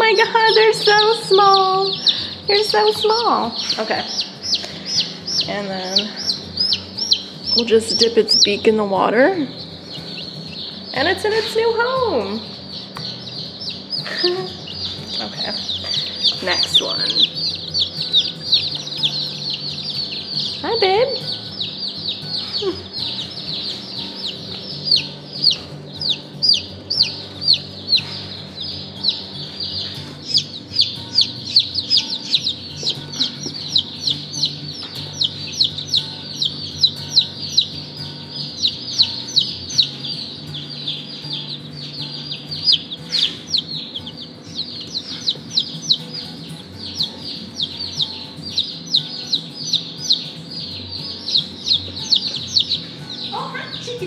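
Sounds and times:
chicks peeping: 0.0 - 54.0.

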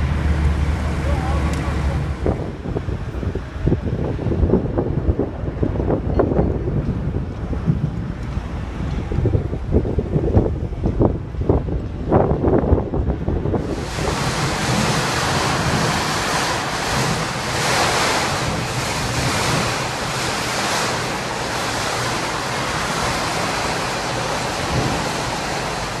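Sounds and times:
strong wind buffeting microphone: 0.0 - 26.0.

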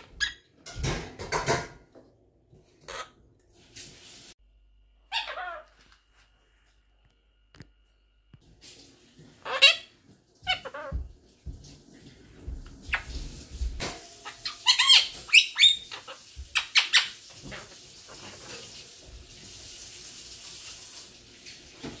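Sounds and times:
parrot talking: 2.9 - 3.1, 5.1 - 5.8, 9.4 - 11.1.

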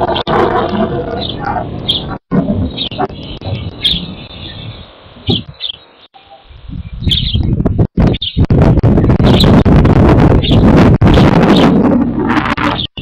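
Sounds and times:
wind buffeting microphone: 0.0 - 5.8, 6.5 - 13.0
small birds chirping: 0.0 - 9.6.

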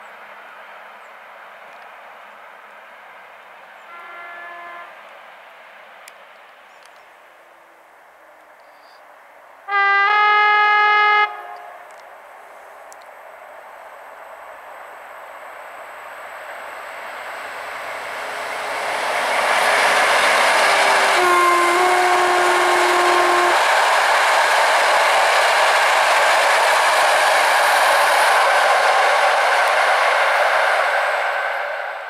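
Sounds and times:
train horn: 3.8 - 5.0, 9.7 - 12.0, 18.7 - 23.8
train rumbling on rails: 9.4 - 32.0.

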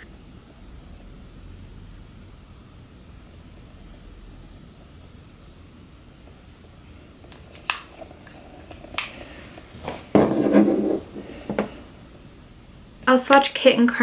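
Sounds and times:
products clattering set down: 9.8 - 11.8.

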